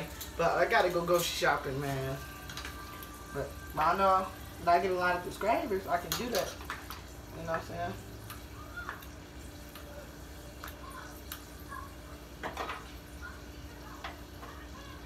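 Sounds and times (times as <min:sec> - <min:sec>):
utensils and dishes clicking: 0:02.3 - 0:03.1, 0:05.4 - 0:09.9, 0:12.4 - 0:13.0.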